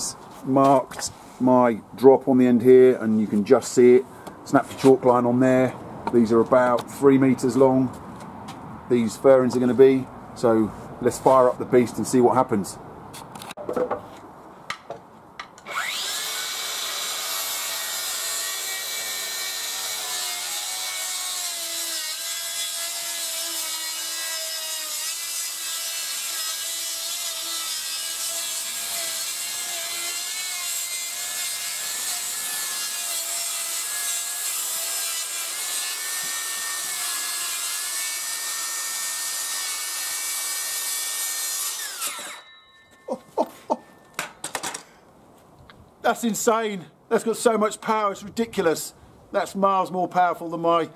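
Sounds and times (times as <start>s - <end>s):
circular saw cutting timber: 15.6s - 42.6s.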